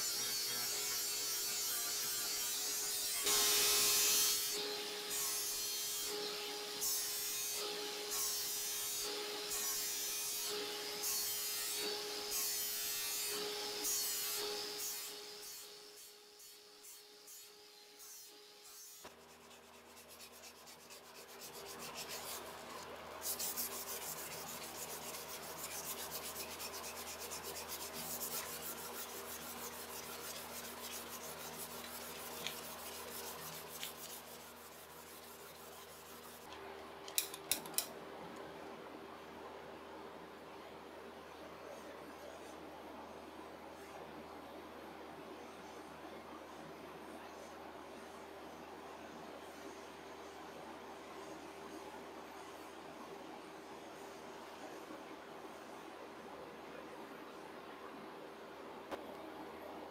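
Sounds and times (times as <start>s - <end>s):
sandpaper rubbing on wood: 19.0s - 36.6s.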